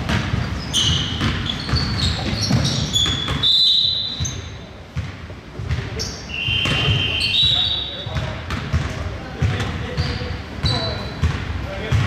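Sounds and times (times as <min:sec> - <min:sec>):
basketball bouncing on hardwood: 0:00.0 - 0:03.5, 0:04.2 - 0:06.0, 0:08.1 - 0:12.0
sneakers squeaking: 0:00.0 - 0:12.0.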